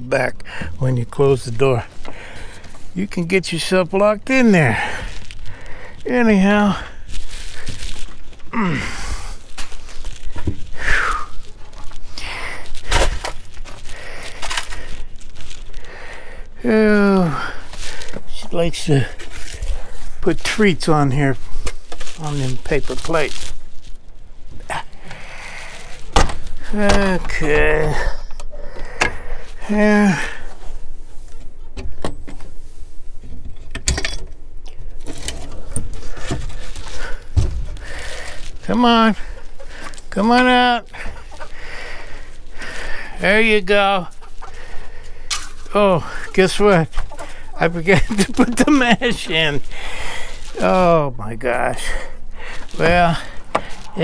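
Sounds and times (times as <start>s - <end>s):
footsteps on dry leaves: 4.3s - 16.3s, 17.6s - 26.7s, 35.9s - 50.9s, 52.0s - 54.0s.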